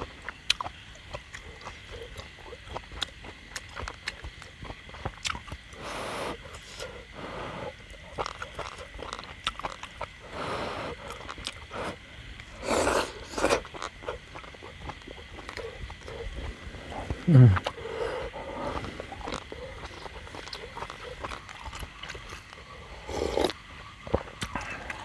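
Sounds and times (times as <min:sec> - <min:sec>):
person chewing: 0:00.0 - 0:07.1, 0:07.7 - 0:25.0
slurping: 0:05.2 - 0:25.0.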